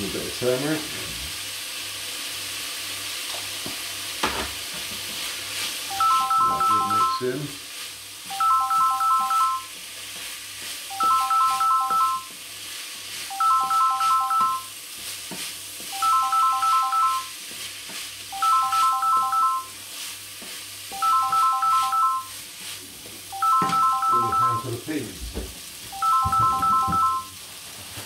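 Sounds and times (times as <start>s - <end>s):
rice sizzling in frying pan: 0.0s - 28.0s
electronic ringtone beeps: 5.9s - 7.3s, 8.3s - 9.7s, 10.9s - 12.3s, 13.3s - 14.7s, 15.9s - 17.3s, 18.3s - 19.8s, 20.9s - 22.3s, 23.3s - 24.7s, 26.0s - 27.4s.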